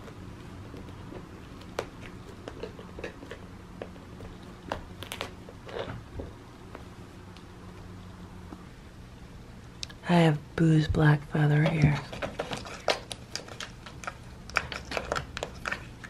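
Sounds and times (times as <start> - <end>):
cat claws scratching: 0.0 - 6.0, 11.6 - 16.0
steady low hum: 0.0 - 16.0.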